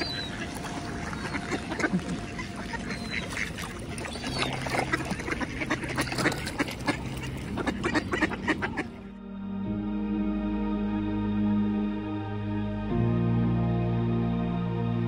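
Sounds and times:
ducks quacking: 0.0 - 9.1.

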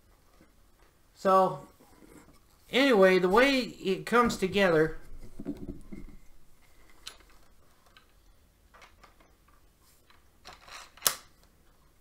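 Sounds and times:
air rifle parts clicking: 10.4 - 11.5.

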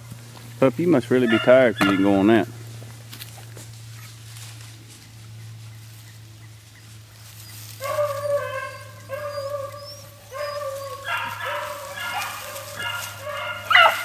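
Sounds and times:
hound baying: 1.1 - 2.4, 7.3 - 14.0.

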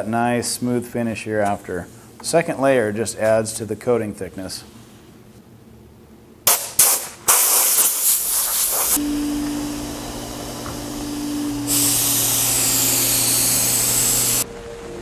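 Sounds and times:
compressed air blasts from blow gun: 6.5 - 9.0, 11.6 - 14.4
spray gun hissing: 6.8 - 14.4
steady hum: 8.7 - 15.0.

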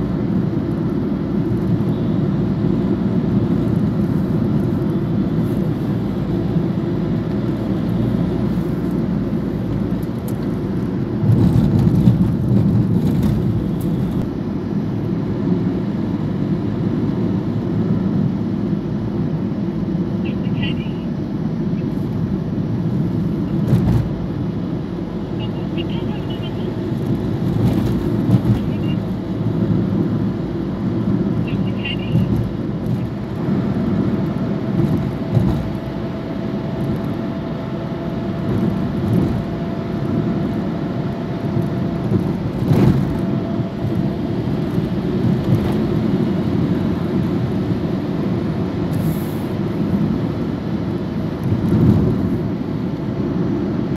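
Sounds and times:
car cabin road rumble: 0.0 - 53.9.

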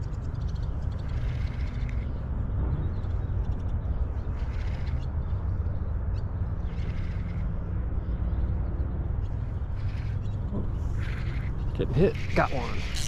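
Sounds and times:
short harsh calls: 10.9 - 13.0.

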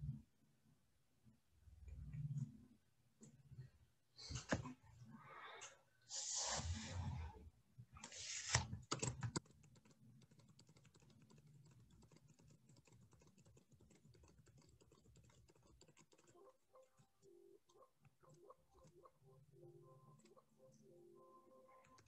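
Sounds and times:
keyboard typing clicks: 8.6 - 20.8.

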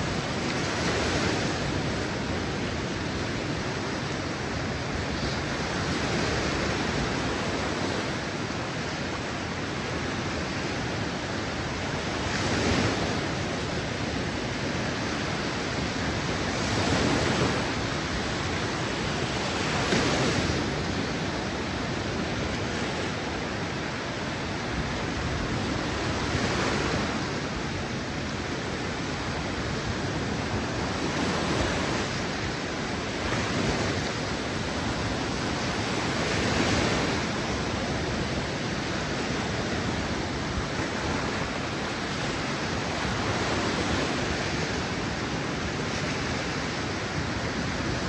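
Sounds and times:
waves breaking on a beach: 0.0 - 48.0.

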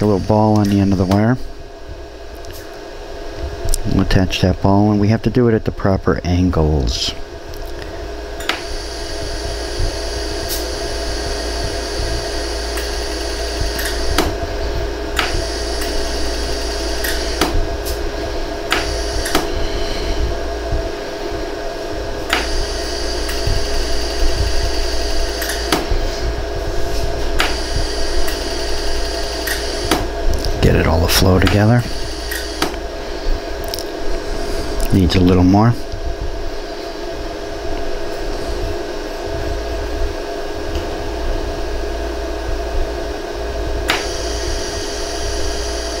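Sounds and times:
laser welder hum: 0.0 - 46.0
sharp laser pulse clicks: 12.5 - 14.3, 15.2 - 18.0, 31.4 - 32.8.

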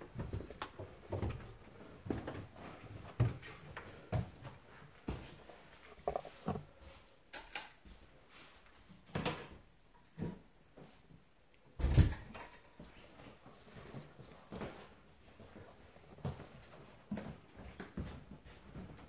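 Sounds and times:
light knocks and bumps: 5.9 - 6.8.

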